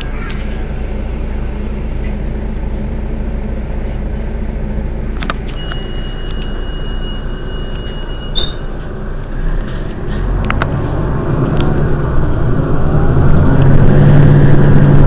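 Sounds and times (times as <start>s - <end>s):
bus engine idling: 0.0s - 15.0s
click: 10.1s - 10.8s.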